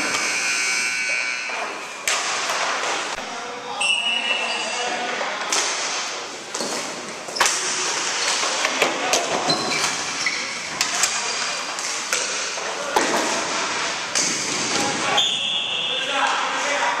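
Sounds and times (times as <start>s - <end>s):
hockey sticks clacking: 0.0s - 3.2s, 4.2s - 16.9s
sneaker squeaks: 3.8s - 5.0s, 9.4s - 11.7s.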